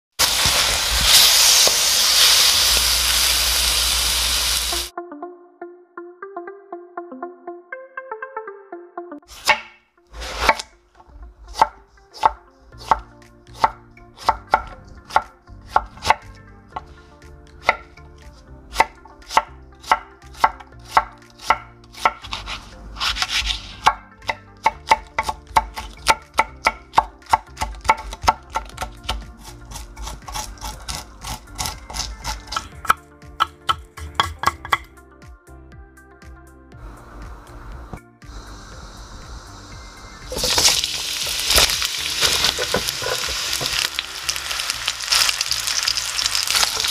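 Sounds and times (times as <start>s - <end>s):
knife chopping on wooden board: 9.3s - 10.6s, 11.5s - 16.9s, 18.7s - 34.9s, 41.5s - 43.9s
spoon scraping chili seeds: 27.6s - 32.9s, 40.3s - 46.9s.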